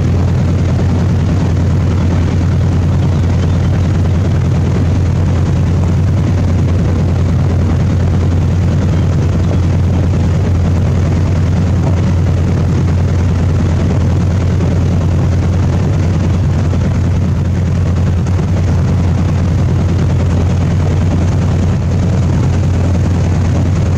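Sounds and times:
boat engine droning: 0.0 - 23.9.

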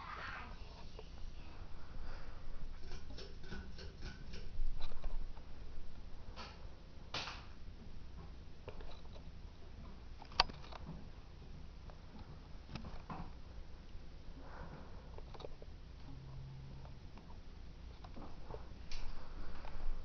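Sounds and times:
ceiling fan humming: 0.0 - 20.0
fan ticking and clicking: 2.7 - 5.1.

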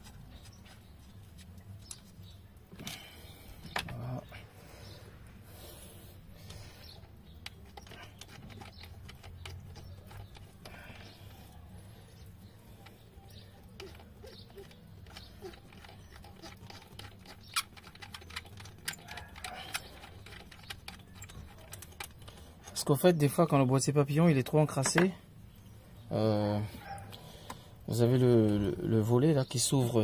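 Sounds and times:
metal tools clicking and tapping: 7.4 - 11.4, 12.8 - 22.8.

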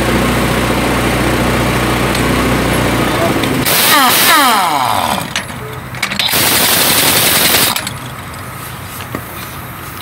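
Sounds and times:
air impact wrench hammering: 3.6 - 8.0.

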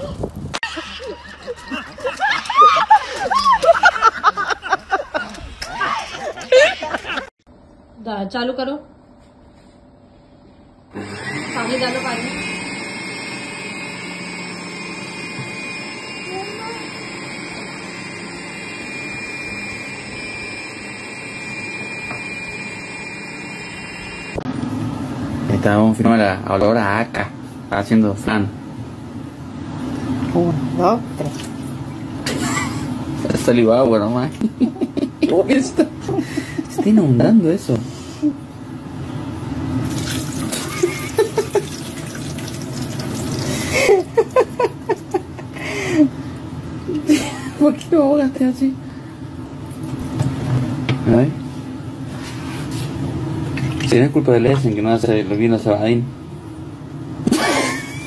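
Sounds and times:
food processor motor whining: 10.9 - 24.5
water pouring: 39.8 - 43.8
liquid splashing into sink: 39.8 - 44.0, 53.5 - 54.0.

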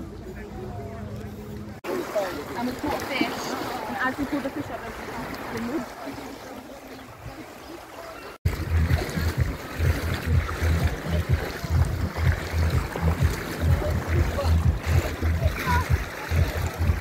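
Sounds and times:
shallow water lapping: 0.1 - 17.0
wind rumbling on microphone: 8.5 - 17.0.

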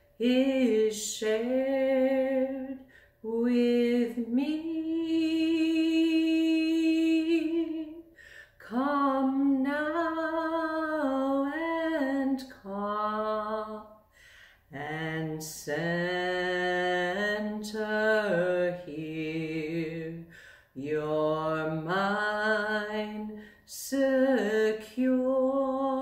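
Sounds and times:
person chanting unaccompanied: 14.7 - 26.0.

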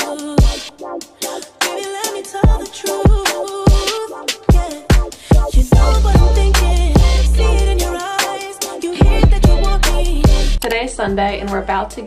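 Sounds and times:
electronic music: 0.0 - 12.0
deep kick drum beat: 2.4 - 3.9, 4.5 - 8.1, 9.0 - 12.0.

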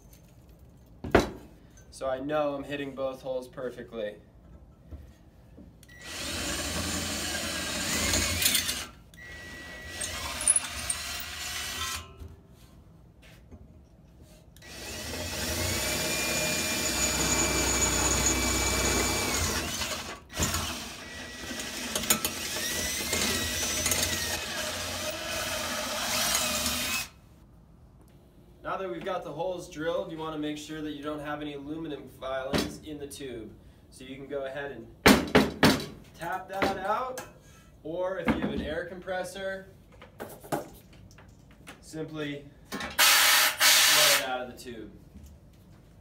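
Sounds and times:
cordless drill motor whine: 5.9 - 12.0, 14.6 - 27.1.

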